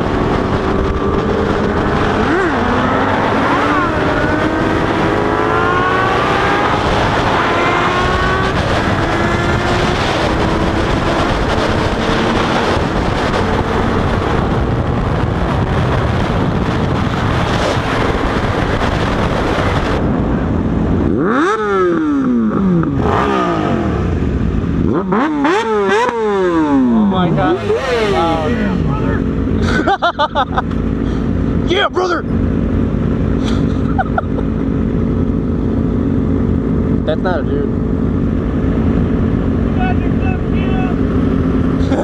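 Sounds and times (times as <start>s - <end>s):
wind rushing: 0.0s - 24.9s
motorcycle engines accelerating: 0.0s - 42.0s.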